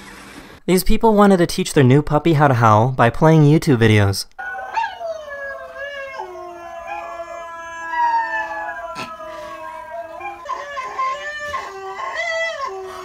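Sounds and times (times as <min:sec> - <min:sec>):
dogs howling: 0:04.4 - 0:13.0.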